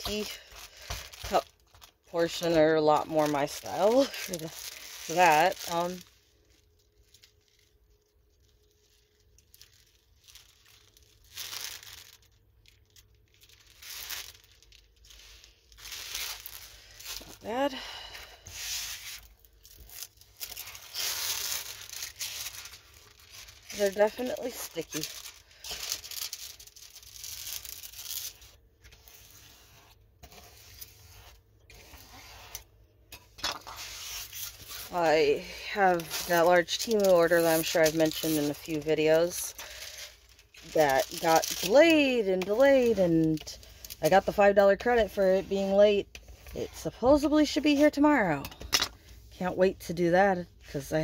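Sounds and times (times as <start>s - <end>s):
plastic packaging crinkling: 0.0s - 49.2s
plastic scraper rubbing plastic film: 2.2s - 6.1s, 18.4s - 32.7s, 33.5s - 48.0s.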